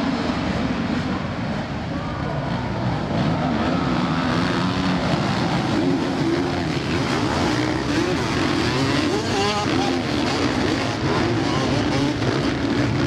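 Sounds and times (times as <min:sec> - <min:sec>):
motocross bike engines racing: 0:00.0 - 0:13.0.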